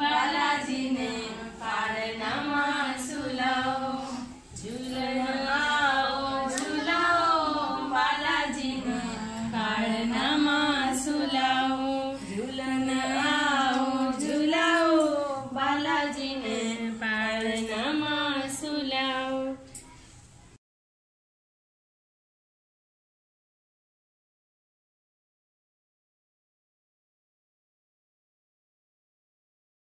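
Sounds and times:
women singing unaccompanied: 0.0s - 19.7s.

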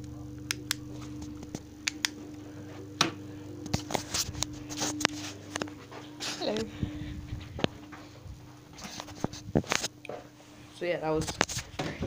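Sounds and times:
steady low hum: 0.0s - 12.0s
rubbing on microphone: 3.7s - 7.6s, 8.4s - 9.9s.

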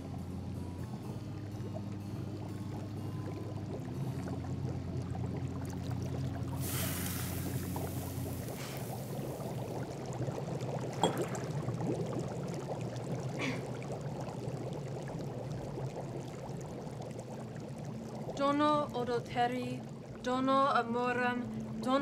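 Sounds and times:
liquid bubbling and fizzing: 0.0s - 22.0s
steady low hum: 0.0s - 22.0s.

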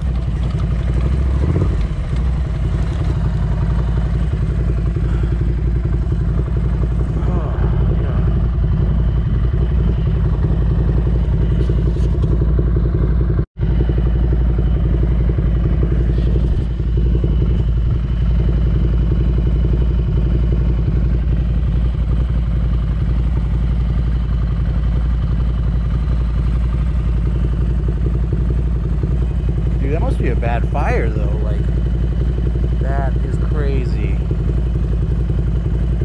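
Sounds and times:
motorcycle engine running: 0.0s - 36.0s.

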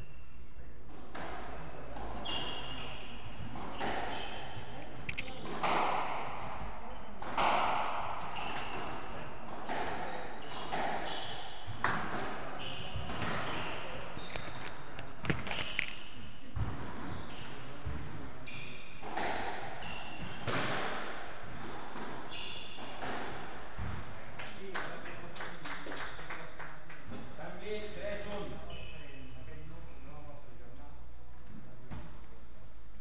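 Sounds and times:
squash ball hitting rackets and walls: 0.8s - 24.3s
shoes squeaking on wooden floor: 4.0s - 5.8s, 12.6s - 18.9s.

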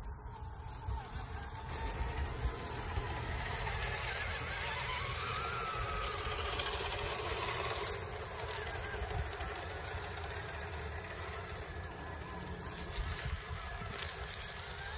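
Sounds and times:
toy truck electric motors whining: 0.0s - 14.9s.

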